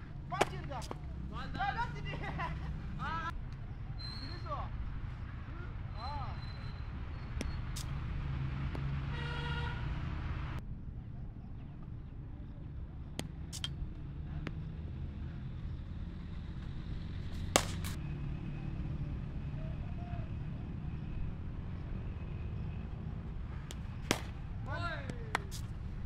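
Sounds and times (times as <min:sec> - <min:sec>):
distant traffic rumble: 0:00.0 - 0:26.0
cricket ball knocks: 0:17.4 - 0:18.0, 0:23.7 - 0:24.4.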